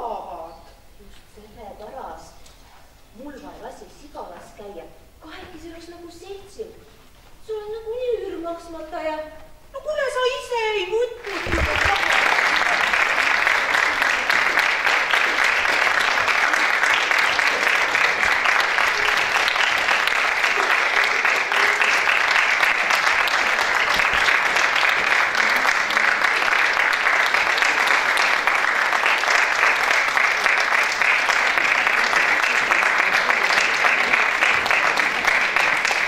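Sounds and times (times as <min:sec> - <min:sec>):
audience applauding: 0:11.2 - 0:36.0.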